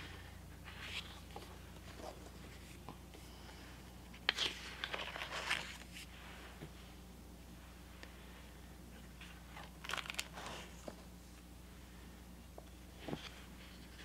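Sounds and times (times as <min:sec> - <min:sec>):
paper pages turning: 0:00.5 - 0:03.1, 0:04.1 - 0:06.1, 0:09.0 - 0:11.0.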